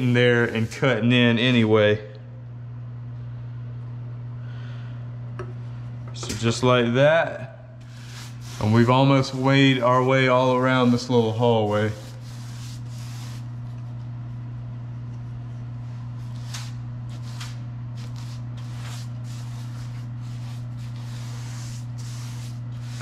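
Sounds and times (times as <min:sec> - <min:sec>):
steady low hum: 0:00.0 - 0:23.0
paintbrush swishing: 0:07.9 - 0:13.7, 0:16.2 - 0:23.0.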